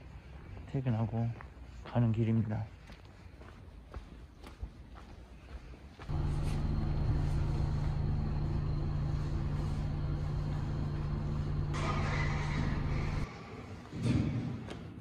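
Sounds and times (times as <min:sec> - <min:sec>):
faint footsteps on paving: 0:00.0 - 0:06.7
elevator hum with low drone: 0:06.1 - 0:13.3.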